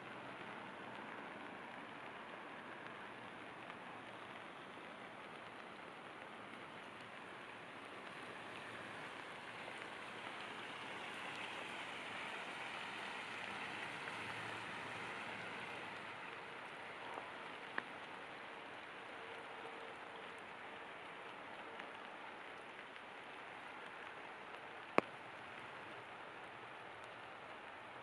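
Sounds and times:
creek water rushing: 0:00.0 - 0:28.0
steady rain falling: 0:00.0 - 0:28.0.

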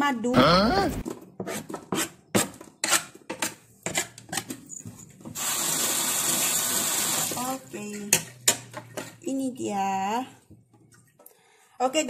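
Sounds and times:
knife scraping plastic cutting board: 0:01.4 - 0:04.5.

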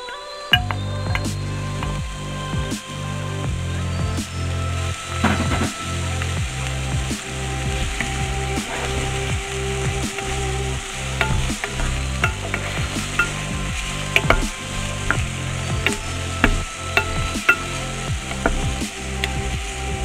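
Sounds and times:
onion sizzling in oil: 0:00.6 - 0:20.0
wooden spoon scraping a pot: 0:05.1 - 0:19.8.

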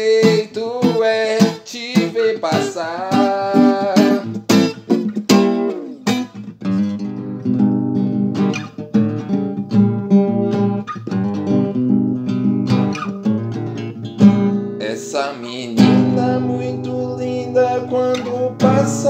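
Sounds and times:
acoustic guitar strummed reggae rhythm: 0:00.0 - 0:19.0.

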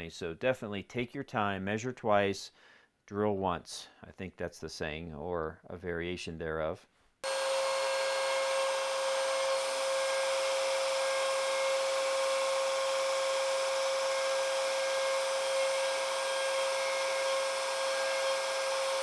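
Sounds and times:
high-pitched motor whine: 0:07.2 - 0:19.0.

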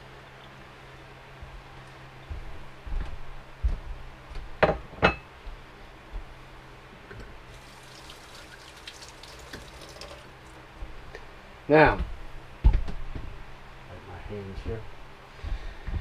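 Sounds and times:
water running into metal sink: 0:07.5 - 0:10.6.

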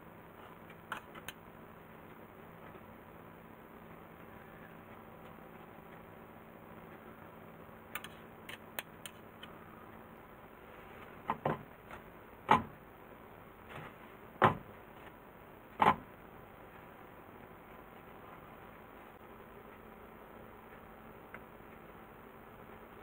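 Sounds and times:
knocks on wooden board: 0:14.4 - 0:14.7.

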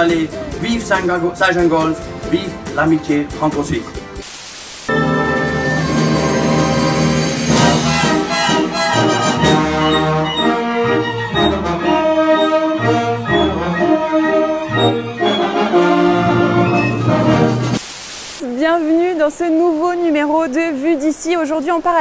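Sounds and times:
orchestra playing classical music: 0:04.9 - 0:17.8.

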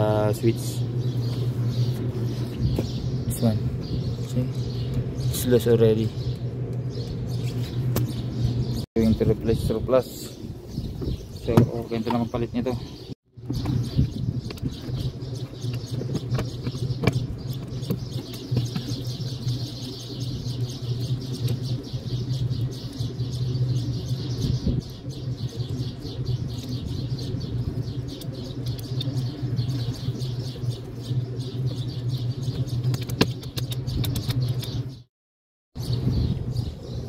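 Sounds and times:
birds chirping: 0:00.0 - 0:35.1, 0:35.8 - 0:37.0
steady low hum: 0:00.0 - 0:35.1.

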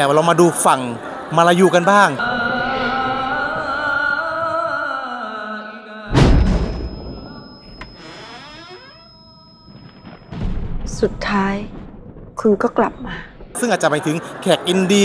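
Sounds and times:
deep boom: 0:06.1 - 0:07.6, 0:10.3 - 0:13.6
thin high tone: 0:06.6 - 0:10.4.

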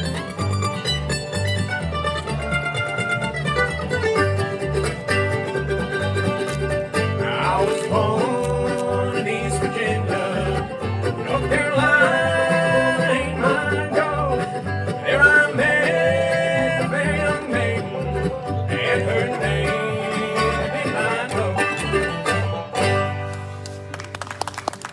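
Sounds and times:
plucked upright bass: 0:00.0 - 0:24.5
acoustic guitar: 0:00.0 - 0:24.9
banjo rolls: 0:00.0 - 0:24.9.

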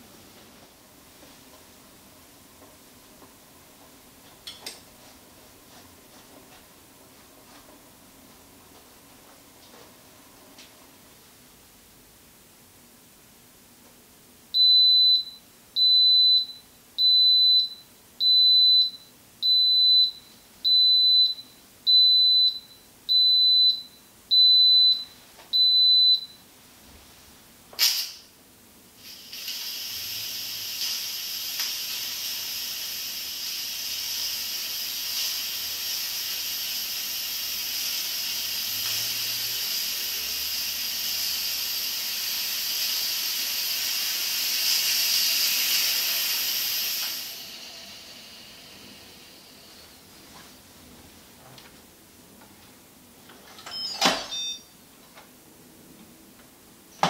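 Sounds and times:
steam hissing: 0:29.0 - 0:50.0
steam valve click: 0:30.7 - 0:32.3, 0:42.8 - 0:47.3
pressure cooker beeping: 0:53.7 - 0:54.7.

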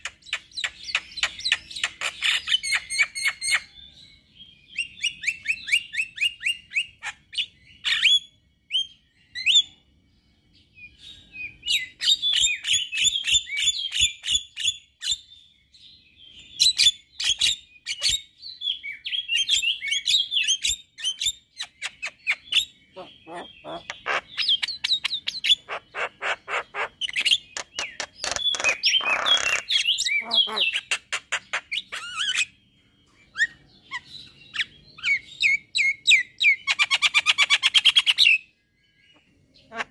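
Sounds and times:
bird raspy squawk: 0:22.0 - 0:32.5, 0:39.6 - 0:39.9
myna chattering song: 0:23.0 - 0:24.3.

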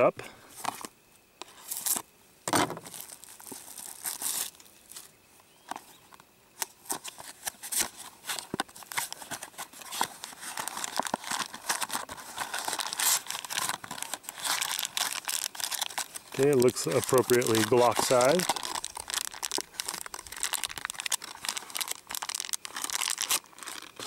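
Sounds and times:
cardboard box tearing and rustling: 0:06.8 - 0:16.2, 0:17.0 - 0:24.0.

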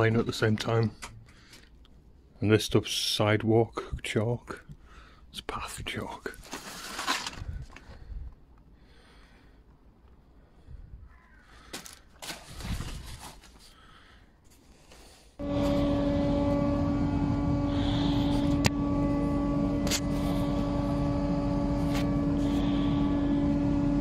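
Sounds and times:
handling knocks and rustles: 0:11.7 - 0:13.8
table saw running: 0:15.4 - 0:24.0.

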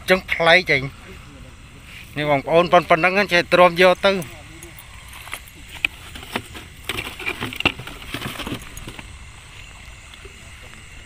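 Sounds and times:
faint high insect drone: 0:00.0 - 0:11.0
rustles clicks and knocks: 0:05.1 - 0:09.1.

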